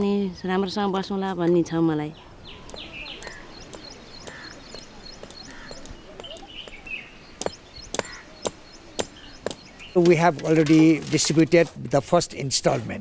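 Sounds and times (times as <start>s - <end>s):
small birds chirping: 0.0s - 11.4s
sharp knocks: 7.4s - 11.8s.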